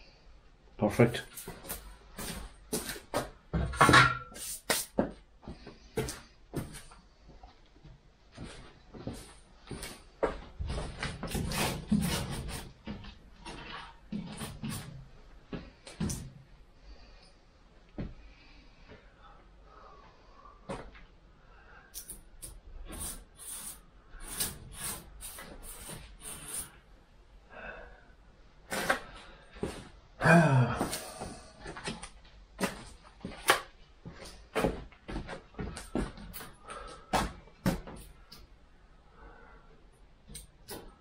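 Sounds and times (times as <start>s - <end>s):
hand scraping metal bodywork: 10.7s - 15.0s.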